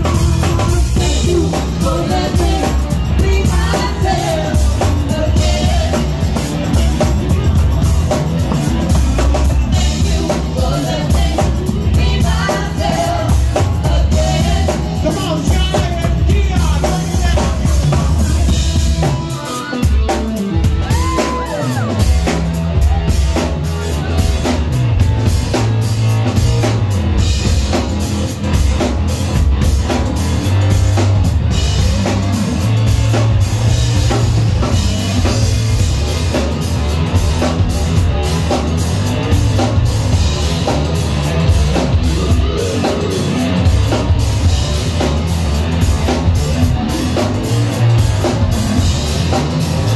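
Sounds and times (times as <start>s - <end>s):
keyboards: 0.0s - 49.9s
live band playing: 0.0s - 49.9s
women singing: 1.0s - 6.4s, 9.8s - 15.1s.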